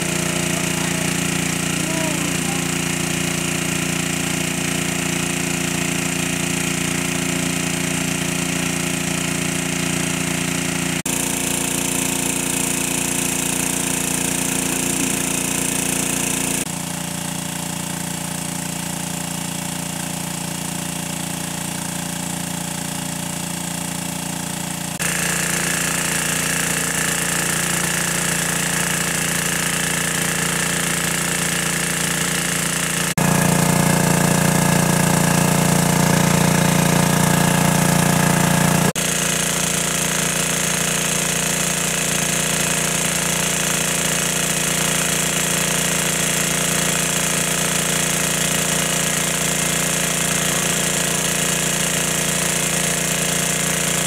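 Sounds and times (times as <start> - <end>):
water pump engine running: 0.0 - 54.0.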